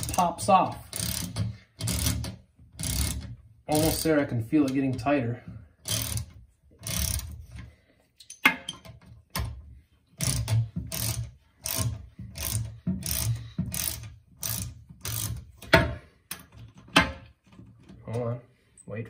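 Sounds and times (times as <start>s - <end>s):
ratchet wrench clicking: 0.0s - 4.8s, 5.8s - 8.9s, 10.2s - 15.7s.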